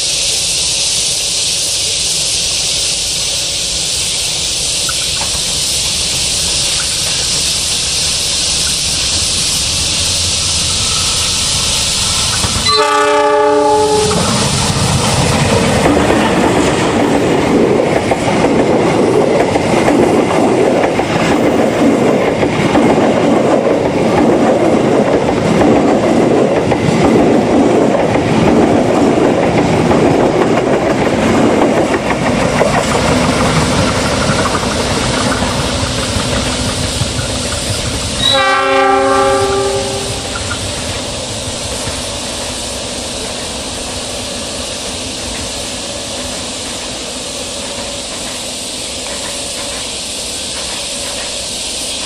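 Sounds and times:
train wheels rumbling on rails: 0.0 - 52.0
train horn: 12.6 - 14.4, 38.2 - 40.4.

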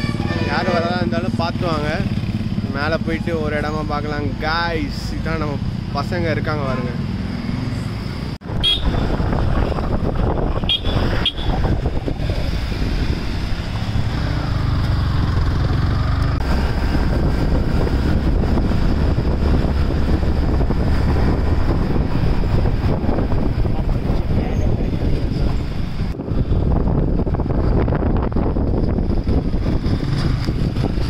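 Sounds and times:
motorcycle engine: 0.0 - 31.0
wind on microphone: 8.4 - 31.0.

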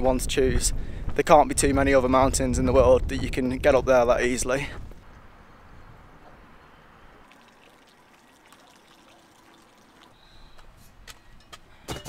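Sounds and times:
water trickling into a container: 7.1 - 10.2.

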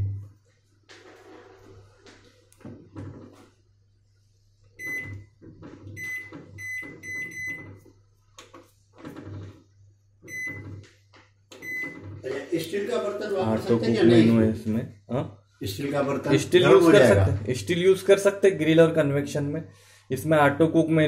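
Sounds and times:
microwave keypad beeps: 4.8 - 5.3, 5.9 - 7.8, 10.3 - 10.7, 11.5 - 12.1.

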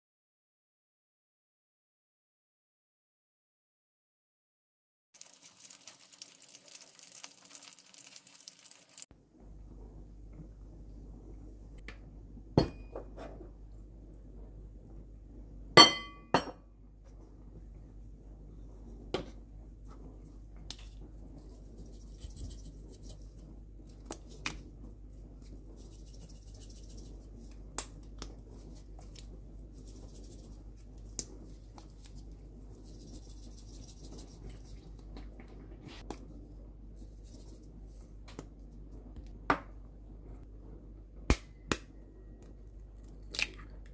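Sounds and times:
chicken sizzling in hot oil: 5.2 - 9.1
spices shaken from shakers: 5.2 - 9.1, 21.4 - 23.4, 25.4 - 27.6, 28.4 - 35.0, 37.0 - 37.8
steady low hum: 9.1 - 43.9
jars clinking against glass bowl: 15.8 - 16.6.

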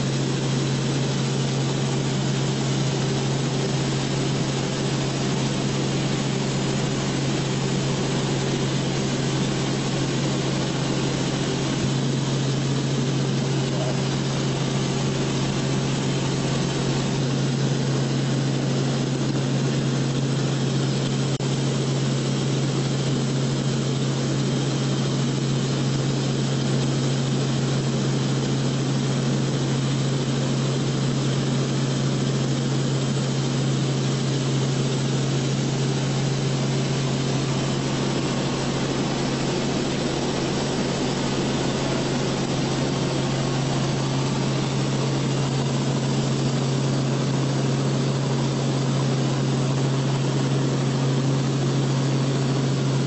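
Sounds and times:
aircraft engine drone in cabin: 0.0 - 53.0.

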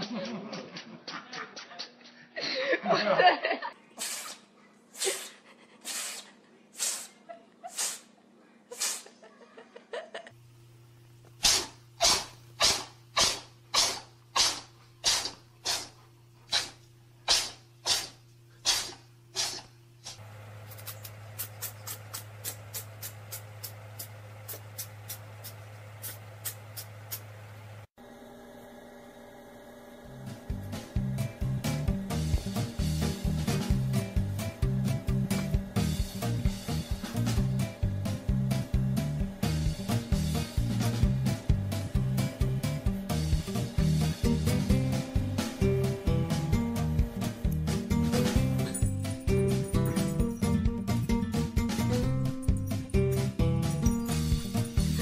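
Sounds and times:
cat sneezing: 4.0 - 9.2, 11.4 - 19.7
steady hum: 10.3 - 50.1.

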